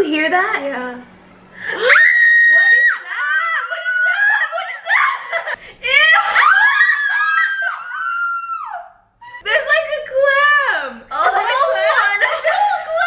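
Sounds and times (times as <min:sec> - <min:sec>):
women shrieking with laughter: 0:01.7 - 0:09.4.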